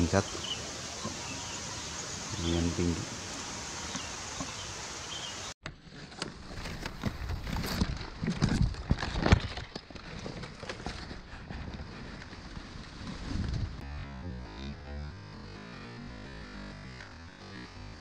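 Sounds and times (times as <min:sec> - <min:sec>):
wind hiss: 0:00.0 - 0:05.5
leaves and twigs rustling: 0:00.0 - 0:13.8.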